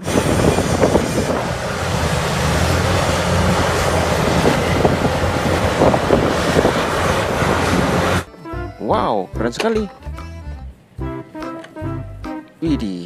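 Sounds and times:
diesel engine humming: 0.0s - 12.2s.

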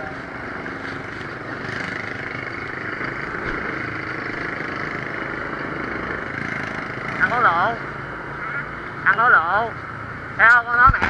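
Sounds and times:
motorbike engine: 0.0s - 11.0s
road noise: 0.0s - 11.0s.

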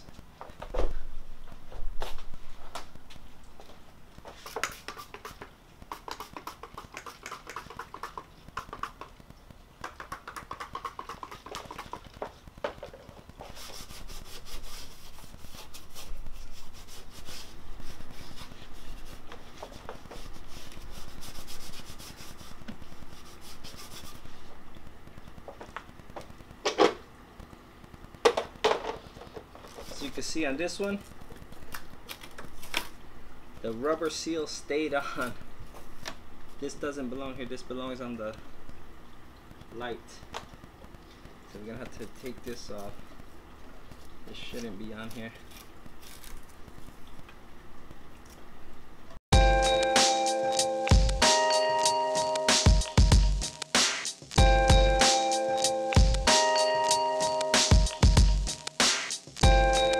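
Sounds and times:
cloth rubbing on car body: 13.4s - 24.5s.

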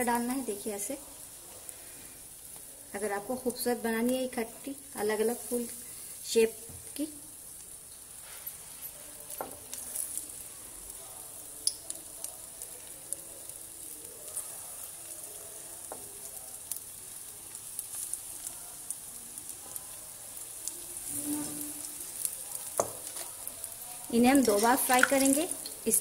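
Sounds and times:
deep-frying sizzle with pops: 0.0s - 26.0s.

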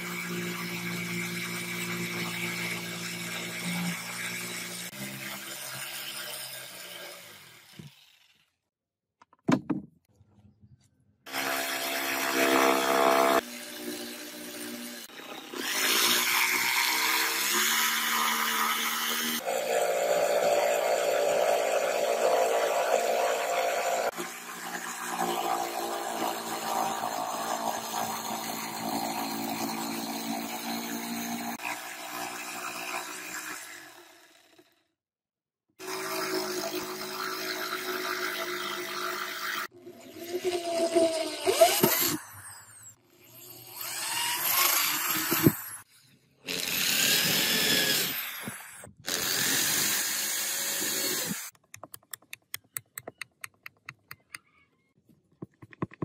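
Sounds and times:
jigsaw cutting board: 0.0s - 9.8s, 11.3s - 34.9s, 35.8s - 54.1s, 55.4s - 56.0s
electric drill boring: 11.3s - 34.7s, 35.8s - 51.6s.

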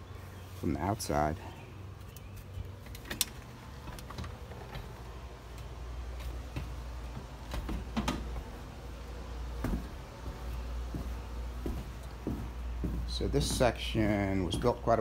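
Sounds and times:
footsteps on plywood floor: 4.8s - 15.0s.

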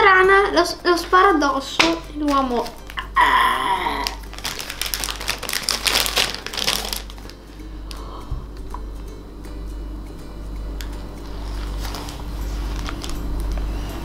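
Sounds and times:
plastic packet crinkling: 2.2s - 3.1s, 3.8s - 7.4s, 11.5s - 13.6s
boy making choking noise: 3.0s - 4.2s.

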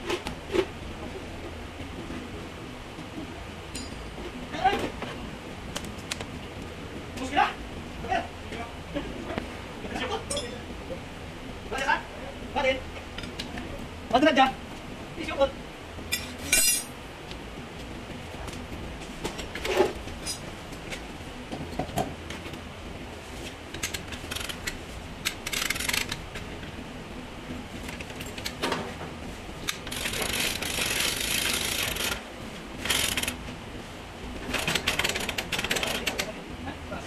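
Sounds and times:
sharp metal clinks: 3.7s - 4.2s, 10.3s - 10.6s, 16.1s - 16.9s
chain rattling through hoist: 29.8s - 32.2s, 32.8s - 33.4s, 34.5s - 36.3s.

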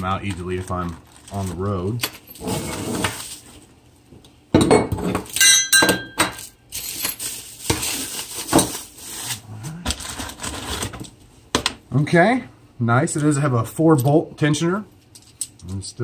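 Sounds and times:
plastic bag and bubble wrap crinkling: 0.0s - 3.6s, 6.8s - 10.9s
metal pieces clinking: 5.3s - 8.0s.

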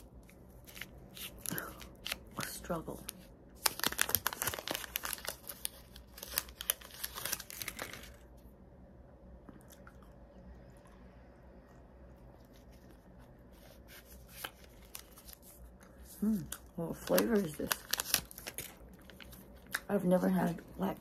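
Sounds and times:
gum wrapper crinkling: 3.6s - 8.4s, 14.1s - 19.9s.

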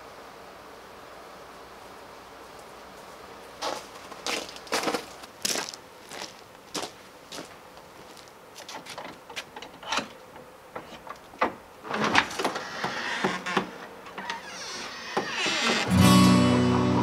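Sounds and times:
footsteps on concrete: 3.6s - 8.7s
wooden door rattling open: 11.4s - 16.1s.

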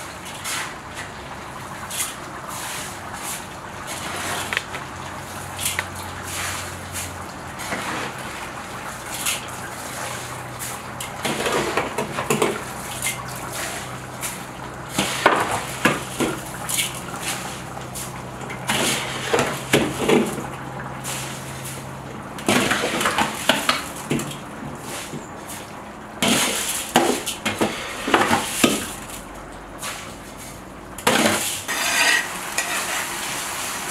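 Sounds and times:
scoop scraping and clinking bowl: 31.2s - 33.2s
rice pouring into a pot: 31.2s - 33.9s.

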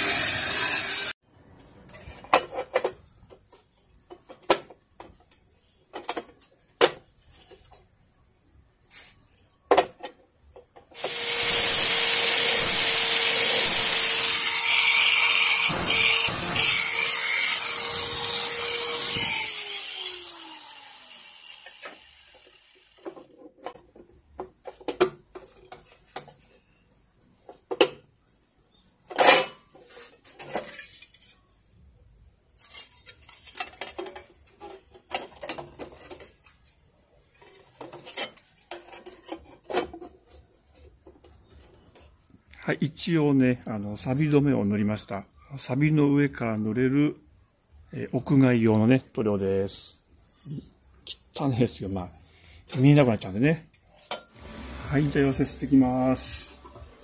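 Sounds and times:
power tool running: 0.0s - 1.2s, 11.0s - 23.0s, 54.3s - 57.0s.

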